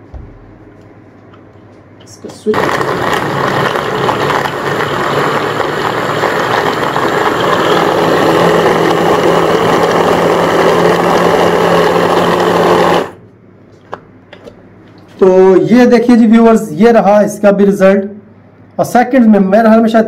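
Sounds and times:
hand blender motor whirring: 2.5s - 13.2s.

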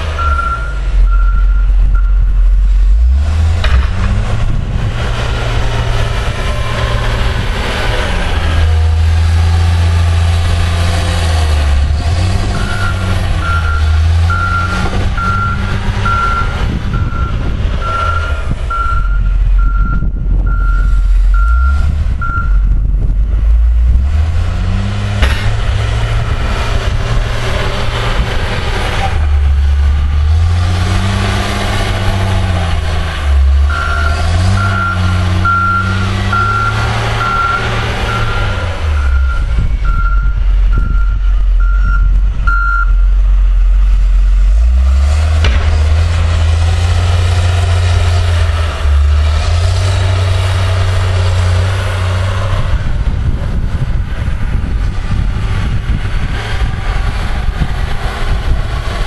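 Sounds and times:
diesel engine running under load: 0.0s - 59.0s
reversing alarm beeps: 0.2s - 2.3s, 12.6s - 22.6s, 39.0s - 43.1s.

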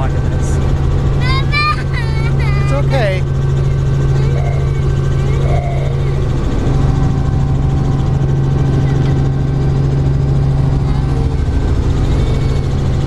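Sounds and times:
helicopter engine and rotor drone: 0.0s - 13.0s.

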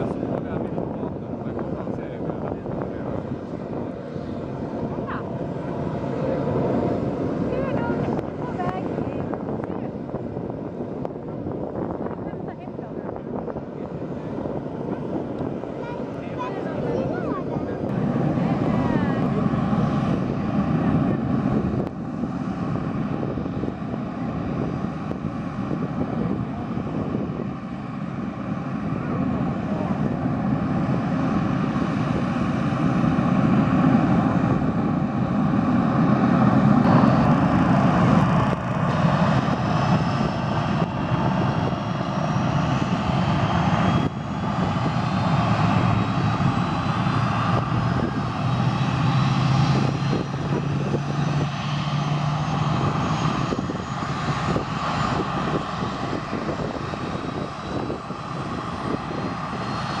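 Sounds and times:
jet engines idling: 0.0s - 60.0s.

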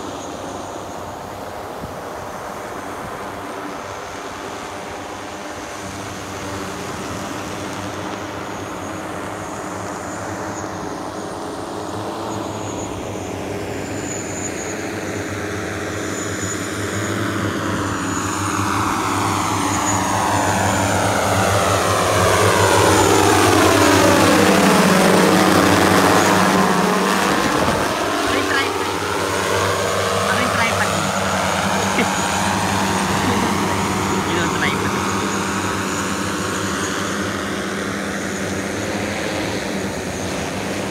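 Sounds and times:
multirotor propellers humming: 0.0s - 40.9s.

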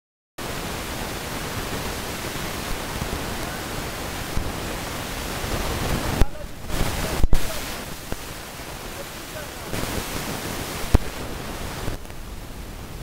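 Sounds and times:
wind buffeting microphone: 0.4s - 13.0s.

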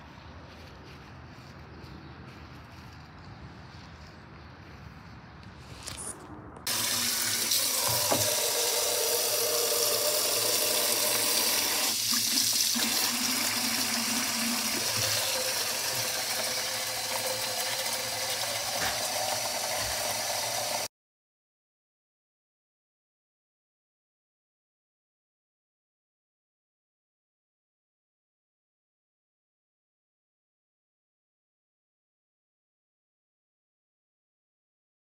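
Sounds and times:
tap water splashing into tub: 6.7s - 8.9s, 11.1s - 16.6s, 17.4s - 20.2s.

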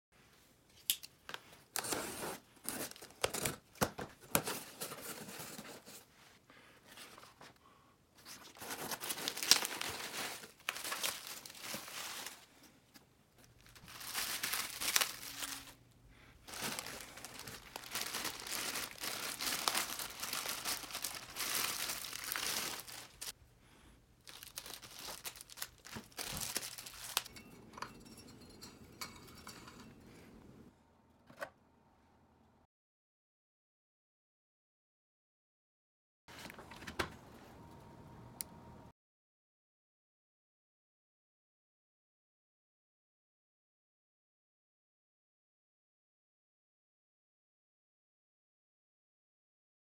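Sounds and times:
plastic wrap crinkling: 8.3s - 12.6s, 13.4s - 15.8s, 16.4s - 23.4s, 24.2s - 27.3s.

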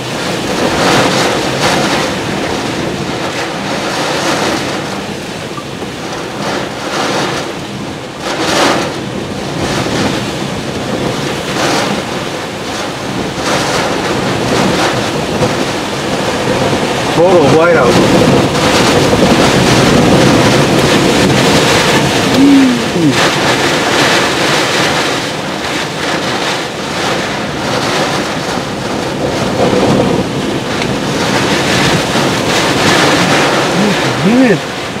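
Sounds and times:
wind and rain rushing: 0.0s - 35.0s.

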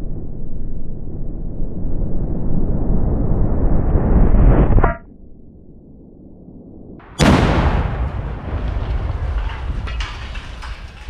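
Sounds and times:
low heavy explosion rumble: 6.0s - 11.0s.

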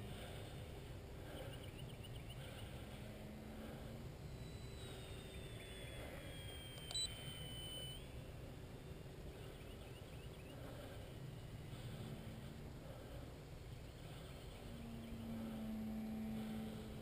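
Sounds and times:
electric motor whine: 2.7s - 9.0s, 14.2s - 17.0s
short sharp beep: 6.5s - 8.0s.

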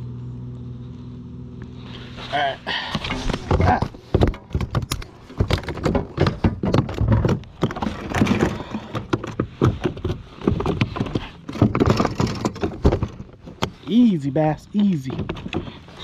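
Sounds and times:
gear knocking on plastic deck: 3.3s - 13.8s, 14.9s - 16.0s.

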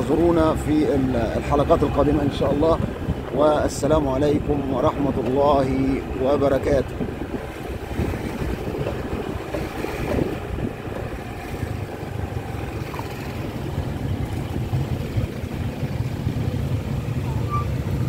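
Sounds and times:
street traffic: 0.0s - 18.0s
wind rumbling on microphone: 0.0s - 18.0s.

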